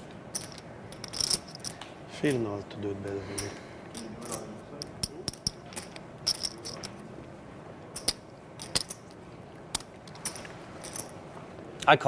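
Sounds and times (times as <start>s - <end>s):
poker chips clicking: 0.3s - 1.8s, 3.1s - 7.0s, 8.0s - 11.2s.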